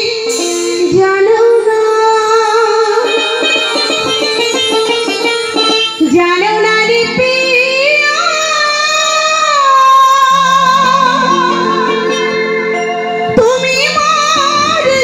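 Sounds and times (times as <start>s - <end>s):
sustained keyboard notes: 2.7s - 7.9s.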